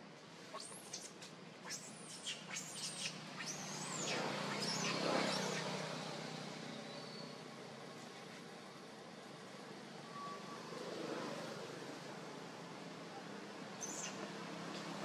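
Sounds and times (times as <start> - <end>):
baby monkey squeaking: 0.5 - 5.8, 13.8 - 14.2
vehicle passing: 3.0 - 6.9, 10.5 - 12.5.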